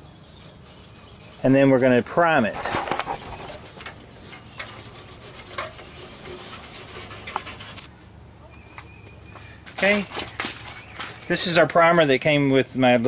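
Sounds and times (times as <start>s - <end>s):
scuff pad scraping metal: 0.4s - 7.9s.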